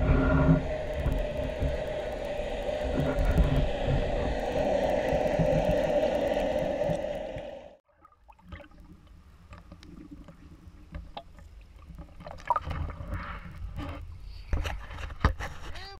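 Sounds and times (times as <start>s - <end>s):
muffled underwater rushing: 0.0s - 7.8s
water splashing and lapping: 0.0s - 15.0s.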